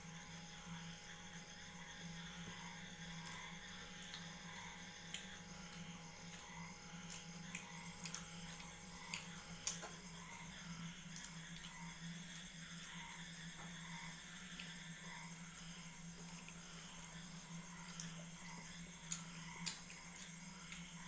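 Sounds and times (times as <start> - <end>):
steady low hum: 0.0 - 21.0
chewing clicks and smacks: 3.2 - 10.4, 11.1 - 13.3, 16.2 - 16.8, 17.7 - 21.0.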